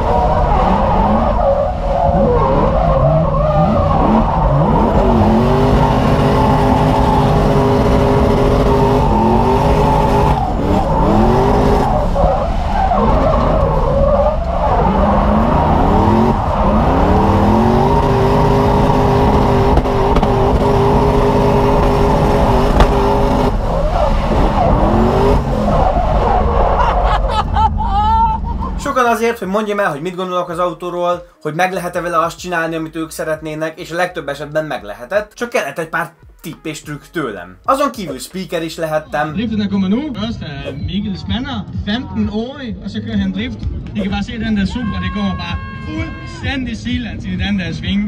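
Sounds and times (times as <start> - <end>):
car engine revving: 0.0 - 28.9
tyres skidding: 0.0 - 30.8.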